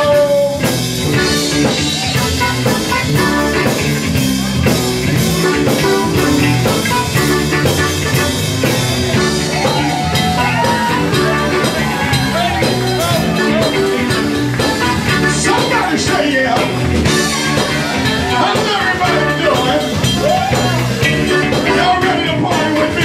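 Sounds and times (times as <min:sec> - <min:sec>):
soul band playing: 0:00.0 - 0:23.0
person singing: 0:09.4 - 0:23.0.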